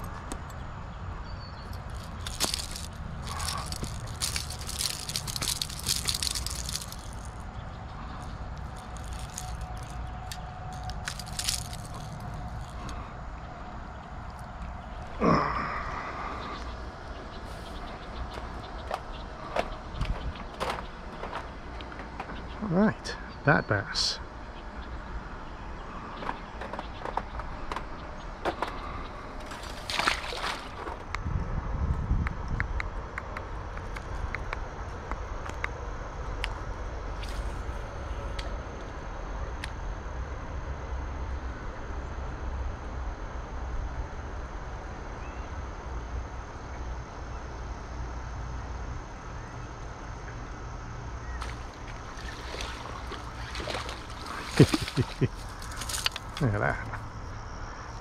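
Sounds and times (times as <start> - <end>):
grass rustling: 1.6 - 13.1, 14.2 - 22.5, 51.3 - 57.2
fish splashing into water: 29.5 - 30.9, 51.4 - 56.1
wind on microphone: 31.1 - 33.0.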